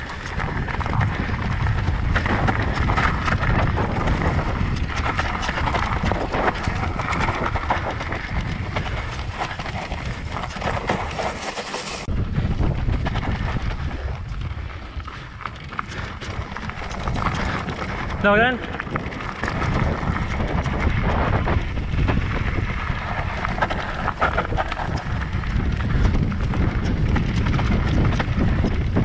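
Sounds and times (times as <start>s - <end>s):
rattling and crunching: 0.0s - 12.1s
tyres rolling on soft ground: 0.0s - 29.0s
wind buffeting microphone: 0.0s - 29.0s.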